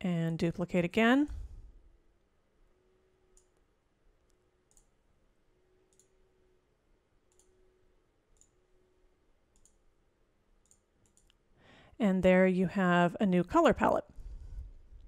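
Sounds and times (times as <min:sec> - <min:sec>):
computer mouse clicks: 0:03.3 - 0:03.6, 0:04.3 - 0:05.0, 0:05.9 - 0:06.2, 0:07.3 - 0:07.6, 0:08.3 - 0:08.6, 0:09.5 - 0:09.8, 0:10.6 - 0:11.4.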